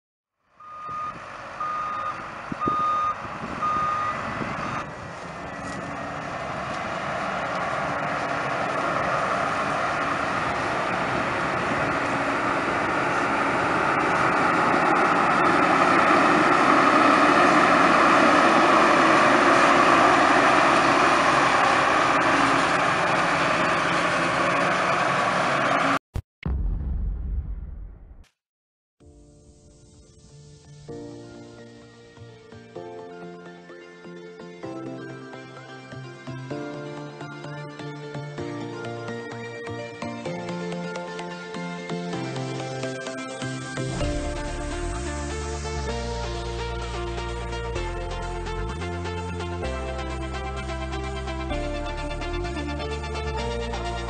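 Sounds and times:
reversing alarm beeps: 0.6 - 4.9
diesel engines running: 0.6 - 26.0, 37.1 - 54.0.

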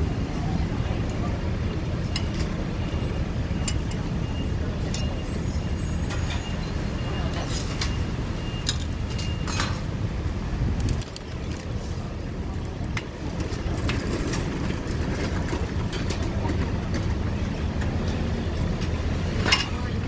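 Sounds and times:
low street rumble: 0.0 - 20.0.

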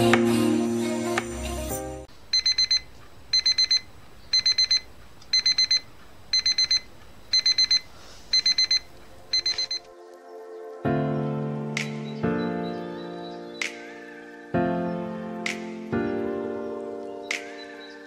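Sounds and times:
alarm clock beeping: 2.3 - 9.9.

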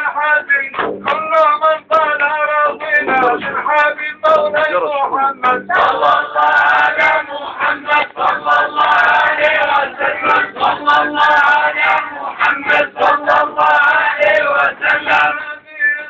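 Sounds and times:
men chanting together: 5.4 - 15.6.

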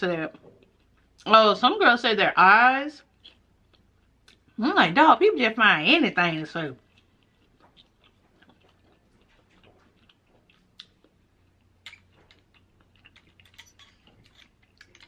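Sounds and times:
soft chewing: 0.3 - 1.3, 3.0 - 4.6, 6.8 - 15.0.

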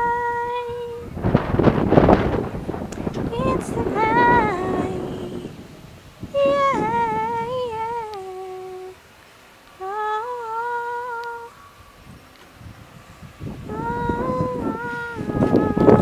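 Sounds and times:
person humming: 3.3 - 9.0, 9.8 - 11.7, 13.6 - 16.0.

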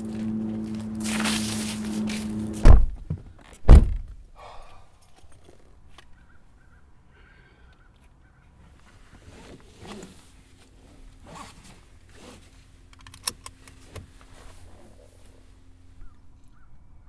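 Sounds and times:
seatbelt webbing swishing: 0.5 - 3.0, 9.2 - 12.6
seatbelt buckle clicking: 12.9 - 14.1.

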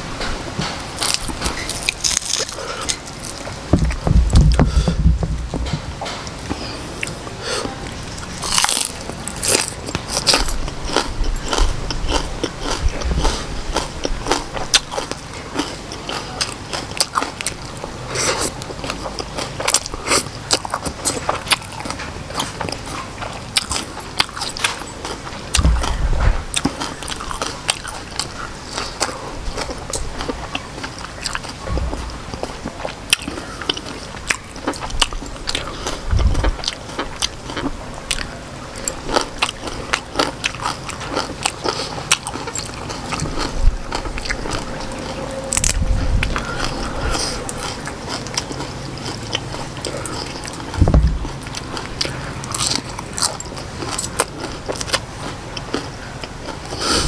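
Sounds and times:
crunching and chewing food: 0.0 - 57.0
low thumps: 3.6 - 6.6, 25.6 - 26.6, 31.7 - 32.4, 50.7 - 51.6.

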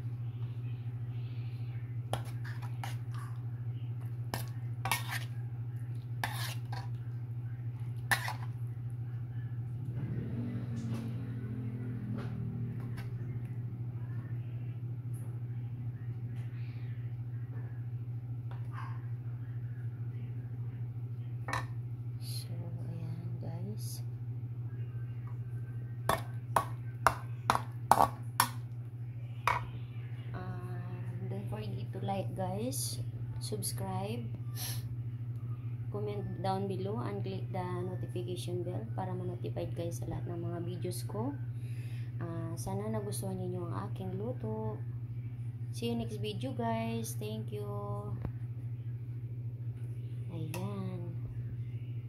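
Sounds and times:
steady low hum: 0.0 - 52.0
spoon scraping metal wok: 4.3 - 5.4, 6.2 - 7.0, 8.1 - 8.6.

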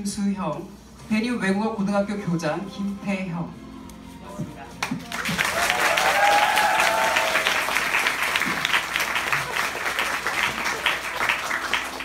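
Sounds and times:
audience applause: 4.9 - 12.0.

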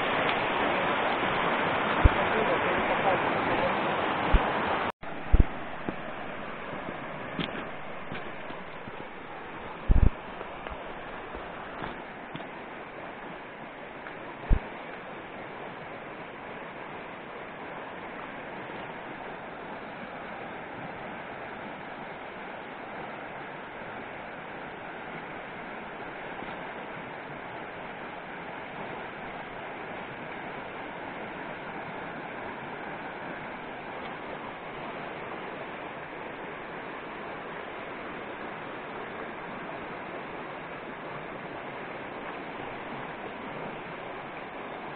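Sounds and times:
stream rushing over stones: 0.0 - 44.9.

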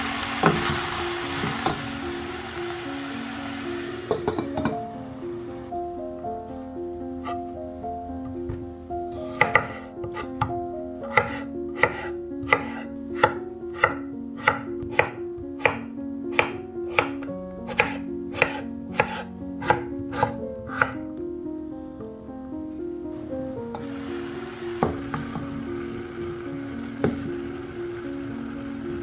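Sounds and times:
knife chopping on wooden board: 9.3 - 10.5, 11.1 - 21.0.

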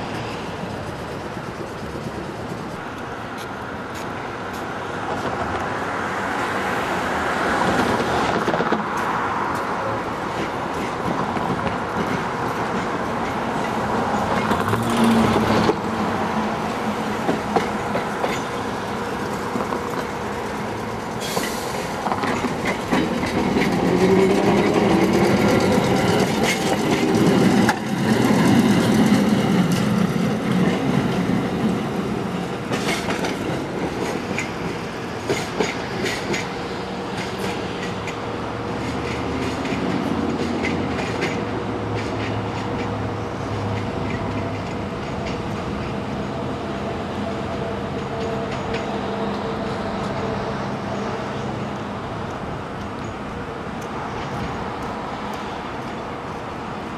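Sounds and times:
streetcar rumble: 0.0 - 56.9
wheels clicking over rail joints: 16.6 - 46.2.

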